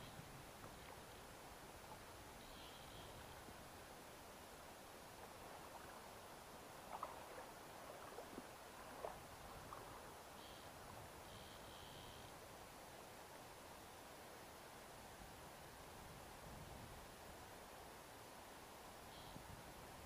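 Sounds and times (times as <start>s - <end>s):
faint steady hiss: 0.0s - 20.0s
faint high tones: 2.4s - 3.4s.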